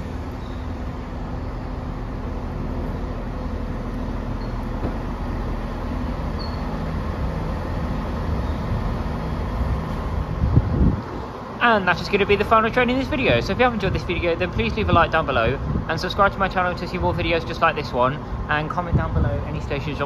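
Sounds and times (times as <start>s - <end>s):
diesel train engines droning: 0.0s - 20.0s.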